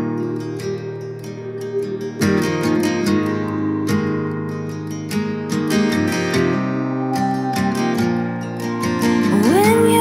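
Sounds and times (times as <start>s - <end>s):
strummed acoustic guitar music: 0.0s - 10.0s.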